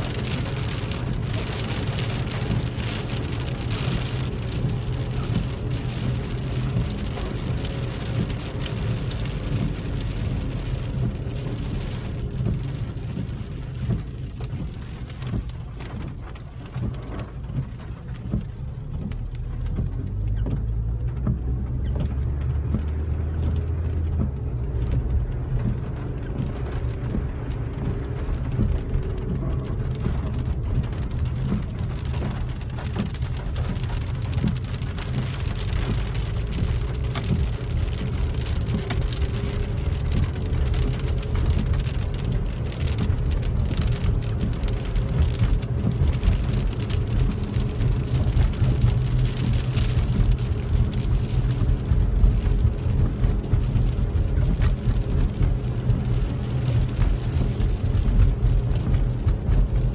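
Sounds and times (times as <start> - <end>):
rain pattering on car roof: 0.0 - 59.9
steady low rumble: 0.0 - 59.9.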